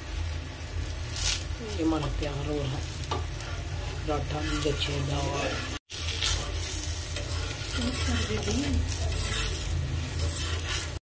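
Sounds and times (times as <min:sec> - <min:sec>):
flatbread sizzling in a pan: 0:00.0 - 0:11.0
spatula scraping a pan: 0:02.8 - 0:11.0.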